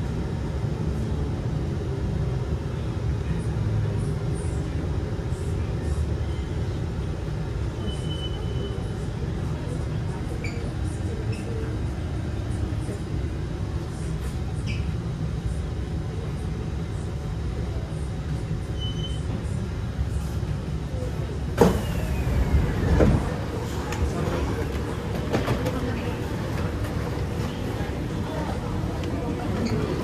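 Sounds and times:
train rumble inside car: 0.0 - 30.0
train rushing: 21.6 - 30.0.

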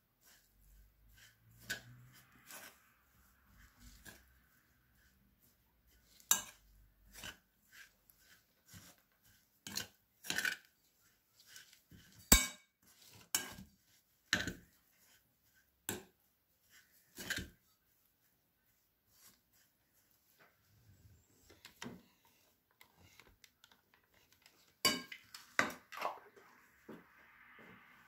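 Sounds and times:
cutlery clinking against glass bowl: 24.8 - 25.4.

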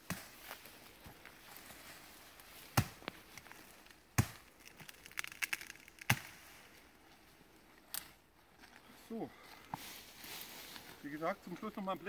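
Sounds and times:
twigs crackling: 0.0 - 12.0
billhook chopping into wood: 2.7 - 3.1, 4.2 - 4.4.

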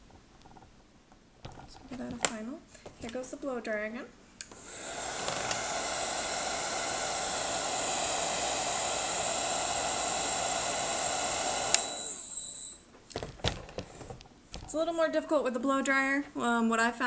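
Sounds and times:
hair dryer blowing: 4.5 - 12.8.

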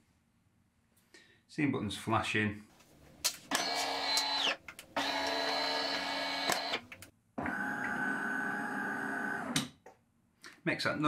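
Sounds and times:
coffee machine pump buzzing: 3.6 - 6.8.

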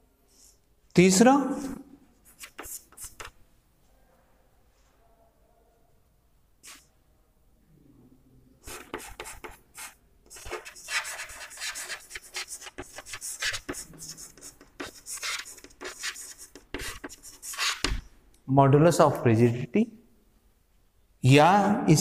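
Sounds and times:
chalk scratching on chalkboard: 1.6 - 3.4, 6.6 - 6.8, 8.6 - 18.0.

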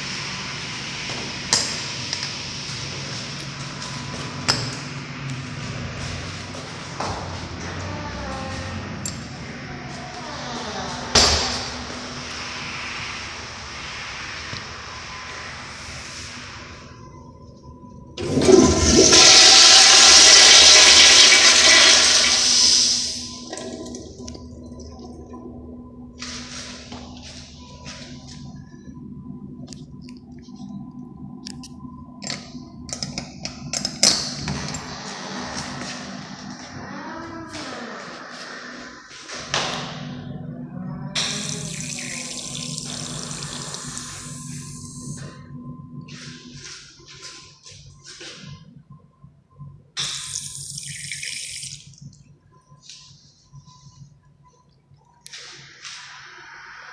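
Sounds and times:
faint steady hum: 0.0 - 56.9
toilet flushing: 18.1 - 25.2, 41.2 - 45.3, 50.0 - 52.0.

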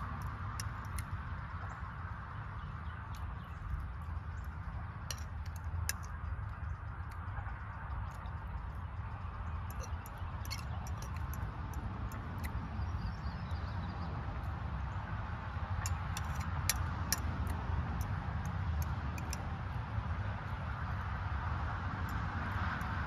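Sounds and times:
low background rumble: 0.0 - 23.0
eating noises: 2.8 - 12.7
fork clicking against bowl: 5.0 - 7.2, 9.6 - 12.6, 15.8 - 19.5.

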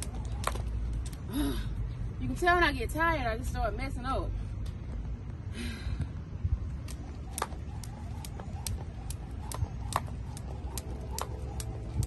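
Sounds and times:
jump rope slapping concrete: 0.0 - 1.3, 6.8 - 12.0.

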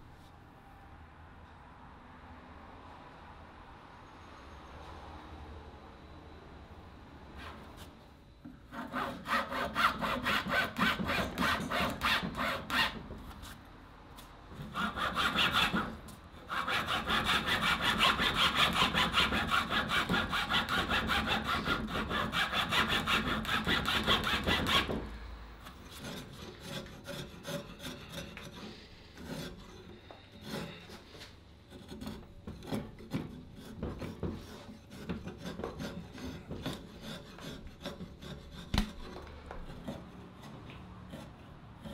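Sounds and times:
hand saw rasping wood: 8.7 - 13.6, 14.6 - 25.2, 25.8 - 41.9.

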